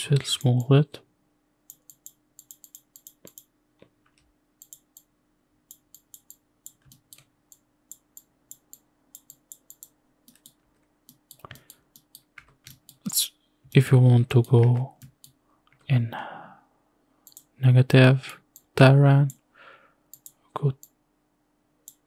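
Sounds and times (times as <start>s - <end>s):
faint steady hum: 0.0s - 22.0s
mouse and keyboard clicks: 1.7s - 3.5s.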